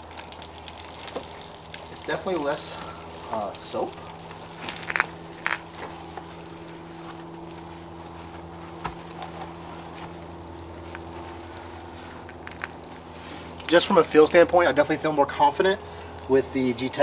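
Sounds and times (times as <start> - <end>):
low hum: 0.0 - 16.8
wash mitt swishing on car paint: 5.8 - 12.4.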